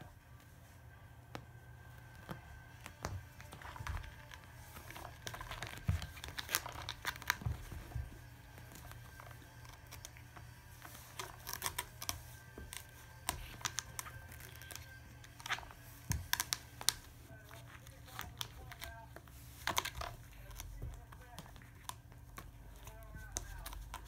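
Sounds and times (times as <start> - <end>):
cat scratching carpet: 0.0 - 24.0.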